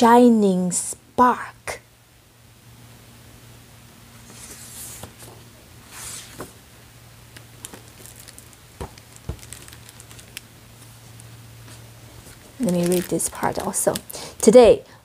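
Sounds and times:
book flipped closed: 4.2s - 6.6s
book pages turning: 4.2s - 6.6s, 7.3s - 14.1s.

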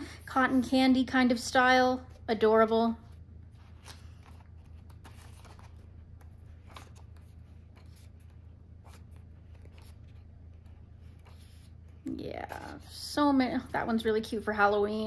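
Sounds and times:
steady low hum: 0.0s - 15.0s
book pages turning: 2.9s - 12.9s.

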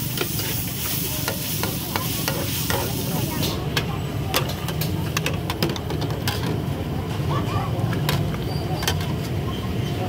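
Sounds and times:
food sizzling in a pan: 0.0s - 3.6s.

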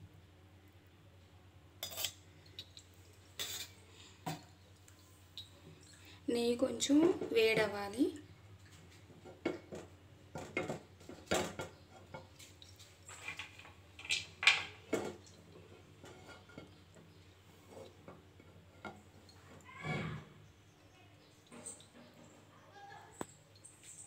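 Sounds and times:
kitchen pots and utensils clinking: 1.8s - 2.7s, 3.4s - 4.5s, 9.2s - 20.1s.

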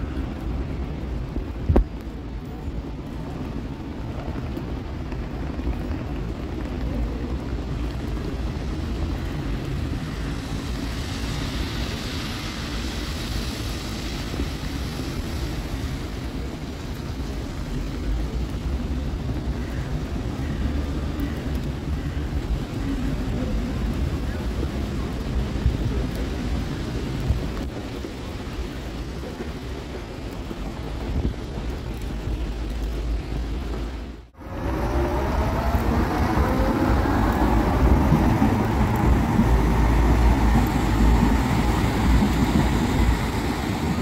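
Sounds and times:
city street traffic rumble: 0.0s - 44.0s
tyre hiss on wet road: 8.8s - 17.9s.

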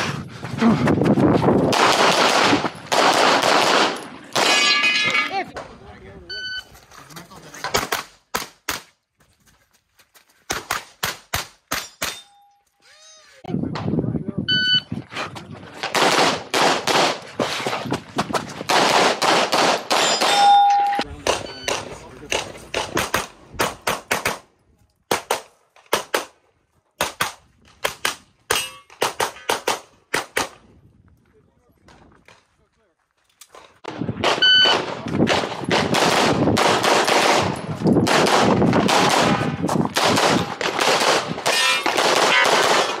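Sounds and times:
pistol shots echoing: 1.7s - 4.7s, 15.9s - 17.2s, 18.7s - 20.5s, 34.2s - 43.0s.

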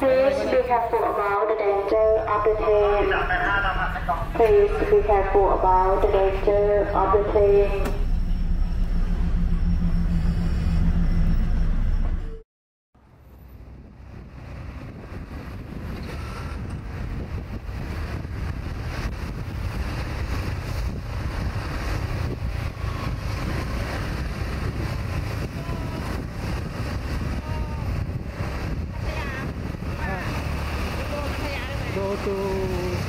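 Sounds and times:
low rumble: 0.0s - 12.4s, 13.0s - 33.0s
wind buffeting microphone: 13.6s - 33.0s.

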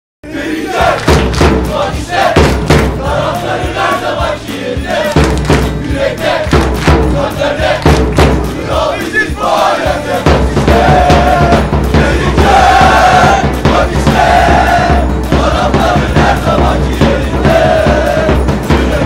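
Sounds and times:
crowd chanting in unison: 0.2s - 19.0s
hand claps: 0.8s - 1.8s, 2.4s - 3.0s, 4.8s - 8.6s.

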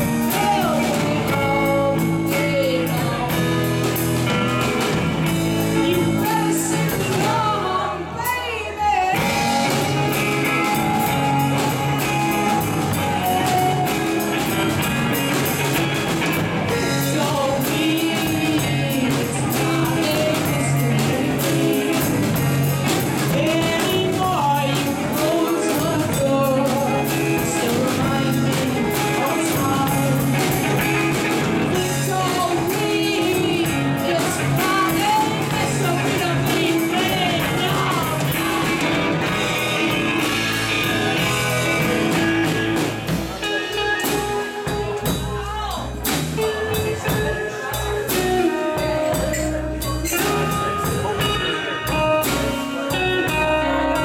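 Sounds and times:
lead vocals singing: 0.0s - 3.8s, 5.6s - 15.4s, 16.5s - 42.0s
drum kit: 0.0s - 54.0s
electric bass: 0.0s - 54.0s
electric guitar: 0.0s - 54.0s.

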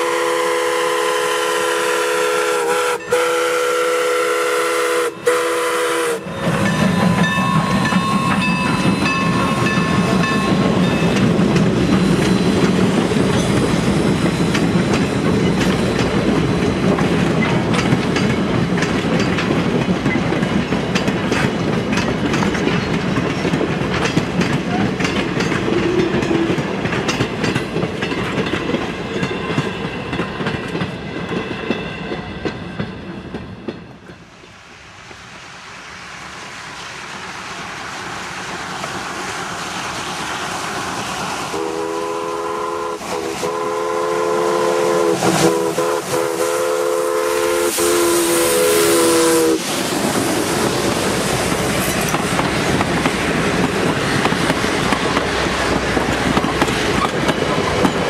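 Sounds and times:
steam locomotive whistle: 0.0s - 10.6s, 25.7s - 26.6s, 41.5s - 49.8s
train rumbling past: 0.0s - 58.0s
wheels clickety-clack on rail joints: 6.2s - 35.2s, 36.7s - 44.0s, 49.6s - 58.0s.

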